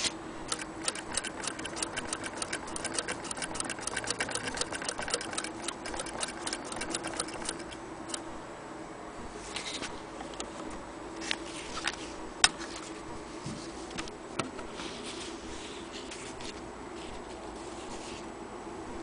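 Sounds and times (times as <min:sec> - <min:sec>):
steady low hum: 0:00.0 - 0:19.0
sharp metallic clicks and taps: 0:00.5 - 0:08.2.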